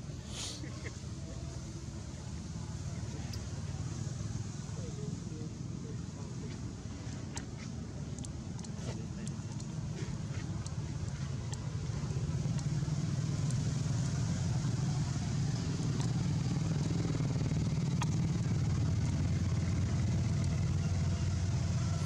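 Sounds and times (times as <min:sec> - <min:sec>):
vehicle engine rumbling: 0:00.0 - 0:22.0
faint clicks: 0:07.3 - 0:13.7.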